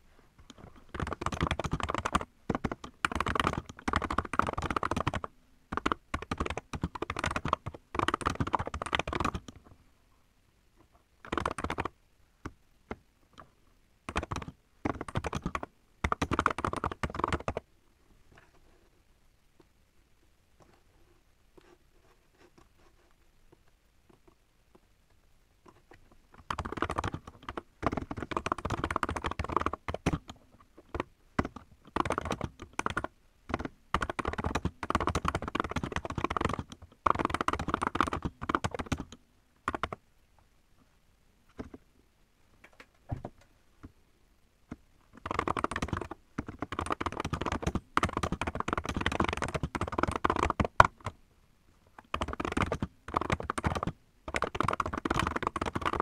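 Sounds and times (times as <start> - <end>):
fast mechanical keyboard typing: 0.5 - 9.6, 11.2 - 11.9, 14.1 - 17.6, 26.4 - 40.0, 45.2 - 51.2, 52.0 - 56.0.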